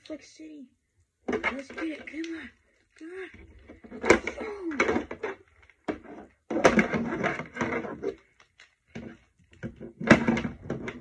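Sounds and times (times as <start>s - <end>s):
boy making vocal sounds: 1.6s - 3.5s, 4.1s - 5.0s.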